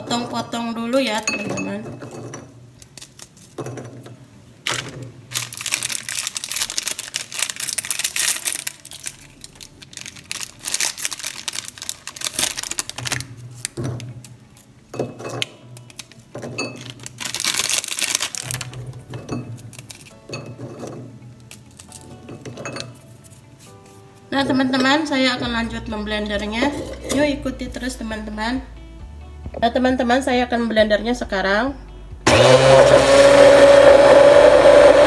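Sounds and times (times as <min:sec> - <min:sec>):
background music: 0:00.0 - 0:35.0
cookies crunching as broken by hand: 0:04.7 - 0:14.4, 0:15.8 - 0:19.0, 0:19.6 - 0:20.2, 0:21.4 - 0:22.1.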